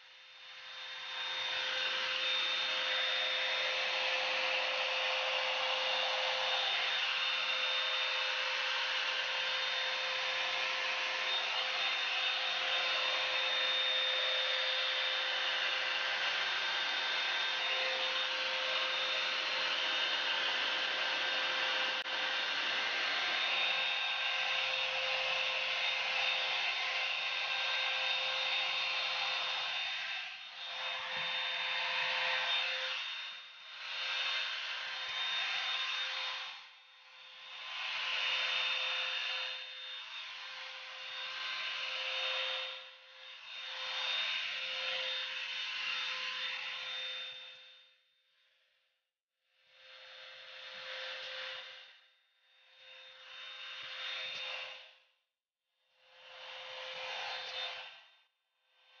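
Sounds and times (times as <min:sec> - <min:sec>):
hair dryer blowing air: 0:00.0 - 0:47.7, 0:49.6 - 0:52.0, 0:52.6 - 0:55.1, 0:56.0 - 0:59.0
motor whine: 0:00.6 - 0:33.6.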